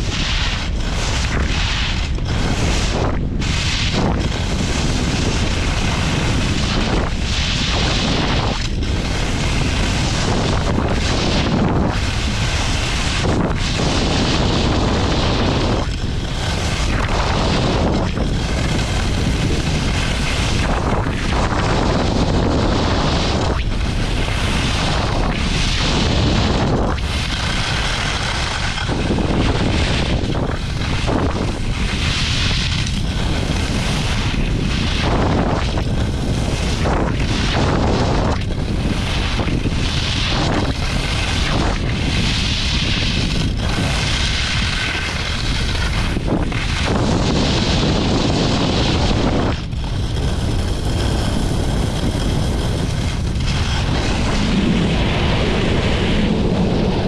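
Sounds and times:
skis carving on snow: 0.0 - 57.0
wind buffeting microphone: 0.0 - 57.0.

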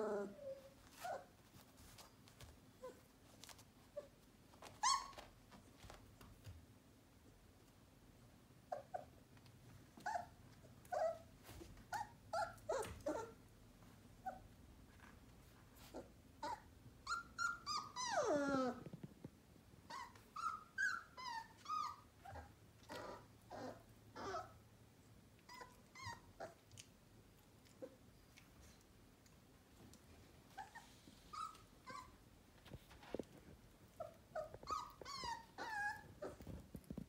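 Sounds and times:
puppies yipping and whimpering: 4.8 - 5.3, 16.4 - 18.8, 34.0 - 36.5.

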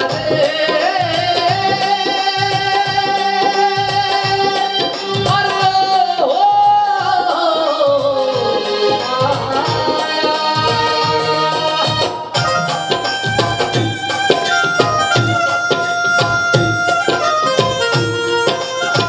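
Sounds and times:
man singing: 0.0 - 12.3
hand drum beat: 0.0 - 19.0
keyboard: 0.0 - 19.0.

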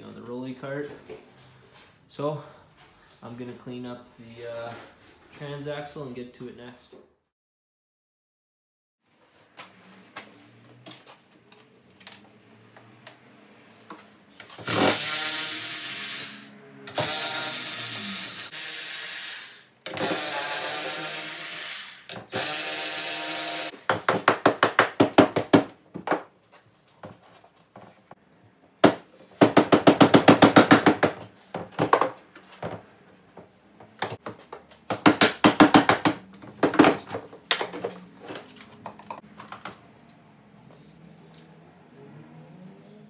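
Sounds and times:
power tool motor whirring: 14.6 - 23.7.

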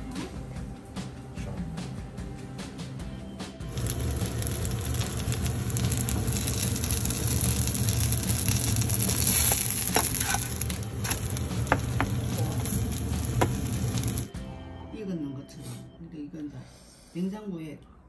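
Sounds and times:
pancake sizzling in oil: 3.7 - 14.3.

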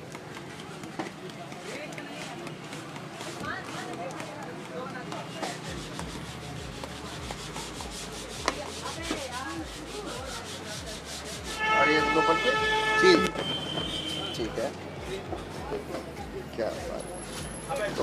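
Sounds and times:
cheese grater rasping: 5.3 - 11.8.

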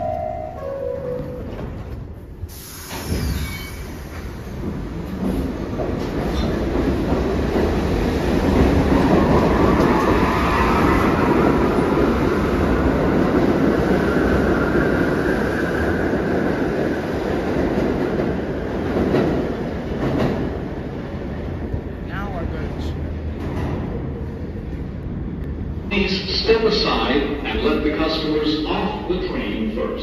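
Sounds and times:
subway train wheels rumbling: 0.0 - 30.0
high wheel squeal: 2.9 - 4.1.

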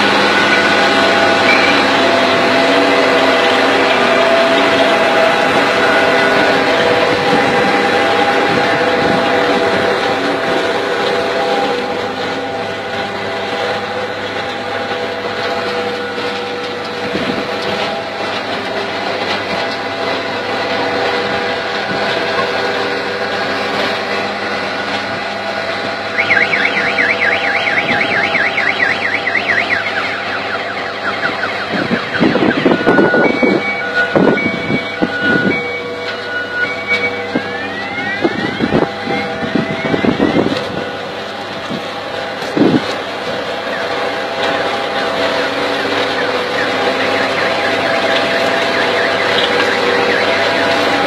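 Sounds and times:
harvester machine drone: 0.0 - 51.0
short beeps: 32.4 - 37.4.

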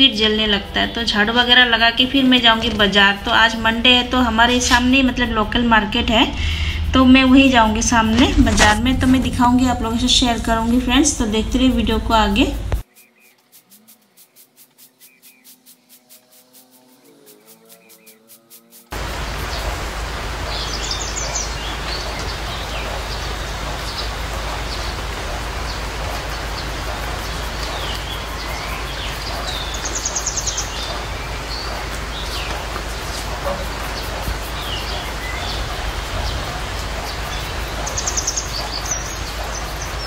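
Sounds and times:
outdoor hiss: 0.0 - 16.7, 18.9 - 40.0
fast pulsing trill: 0.0 - 19.0
birds chirping and calling: 0.0 - 40.0.

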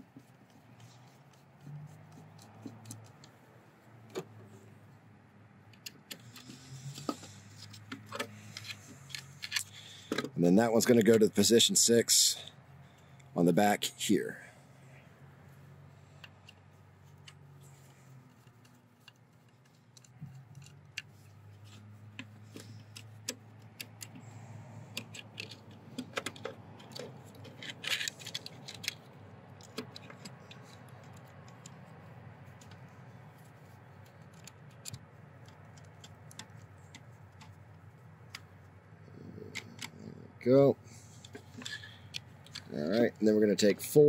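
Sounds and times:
metallic clicks and rattles: 18.2 - 38.6, 41.2 - 43.1.

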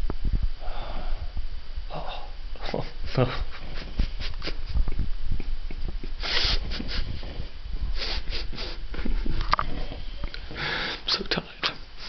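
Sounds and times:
person breathing noisily: 0.6 - 1.4, 6.2 - 11.1.

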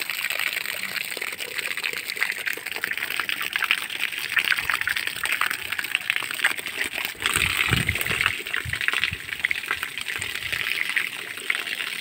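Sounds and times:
water gushing onto ground: 0.0 - 12.0.

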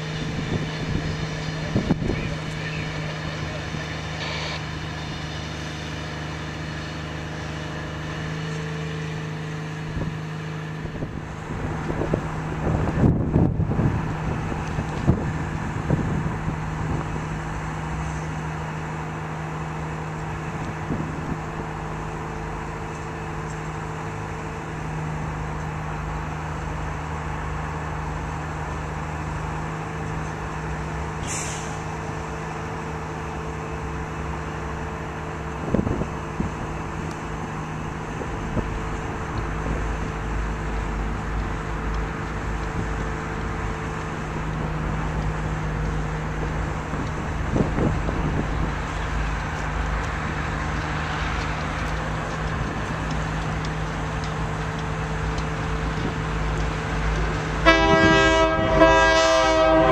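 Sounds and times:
irregular rumbles: 31.9 - 57.6.

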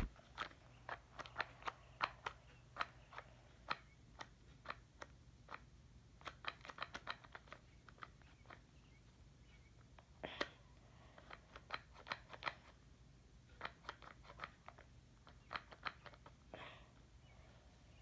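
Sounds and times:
small clicks and taps: 0.0 - 8.7, 11.2 - 12.8, 13.5 - 16.4.

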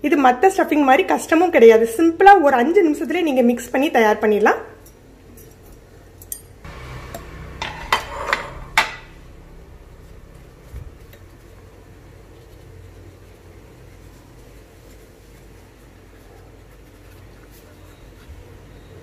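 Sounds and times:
spoon and dishes clinking: 7.2 - 9.1.

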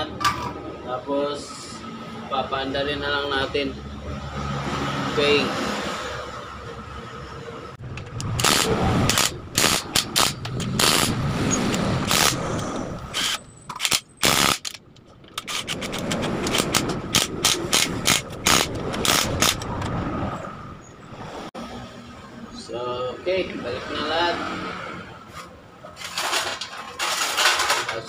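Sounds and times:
impact wrench rattling bursts: 8.0 - 19.7.

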